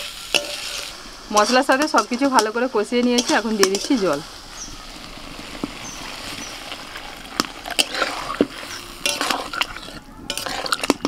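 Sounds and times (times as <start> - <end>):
water sizzling in hot oil: 0.0 - 11.0
metal spatula clinking on wok: 0.3 - 0.7, 1.3 - 4.3, 9.0 - 11.0.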